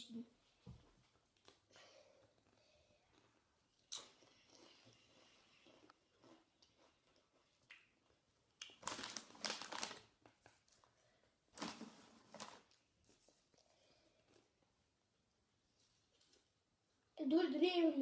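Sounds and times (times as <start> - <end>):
chip bag crinkling: 8.7 - 10.2.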